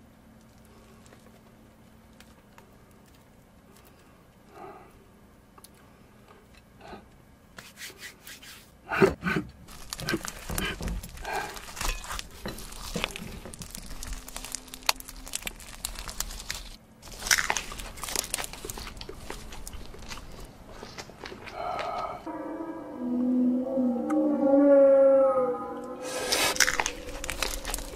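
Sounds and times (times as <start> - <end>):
crunchy treat being chewed: 9.6 - 22.0, 26.1 - 27.9.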